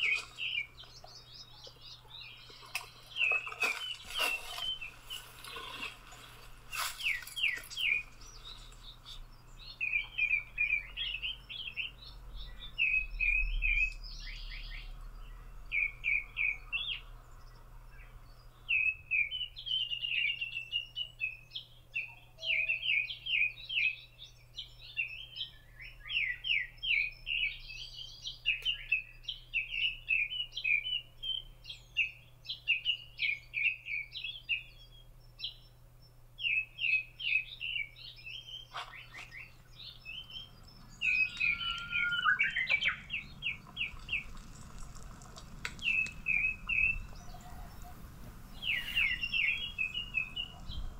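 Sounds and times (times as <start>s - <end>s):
songbirds chirping: 0.0s - 50.9s
low curving bird call: 38.7s - 44.5s, 45.7s - 50.9s.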